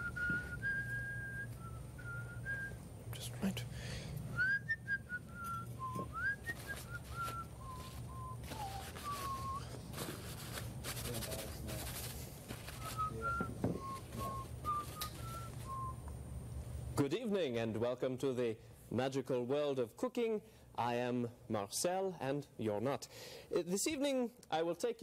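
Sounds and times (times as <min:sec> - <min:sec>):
person whistling a tune: 0:00.0 - 0:02.8, 0:04.3 - 0:09.8, 0:12.8 - 0:16.0
steady low hum: 0:00.0 - 0:17.8
rustling: 0:05.3 - 0:15.8.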